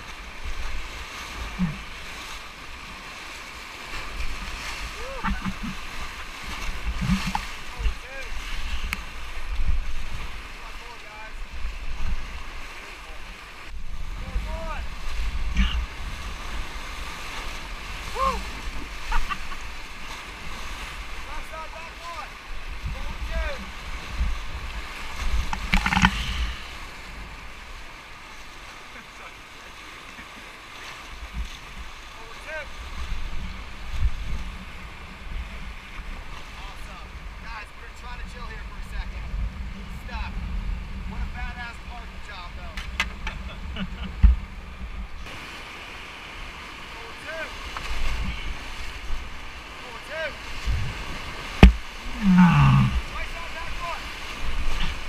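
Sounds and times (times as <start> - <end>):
river rapids rushing: 0.0 - 11.6, 45.2 - 55.0
paddles splashing: 0.0 - 55.0
low rumble on microphone: 1.4 - 2.0, 38.2 - 45.3, 50.6 - 53.2
wind rumble on microphone: 4.0 - 10.6, 13.6 - 21.2, 22.4 - 27.9, 32.7 - 37.4, 38.1 - 45.4, 50.4 - 55.0.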